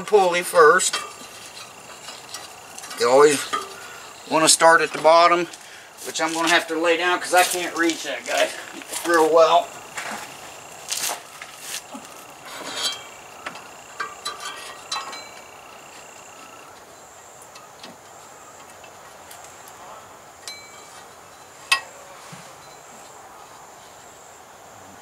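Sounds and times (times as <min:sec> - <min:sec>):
light metallic clinks and taps: 0:12.8 - 0:15.5, 0:20.4 - 0:21.9.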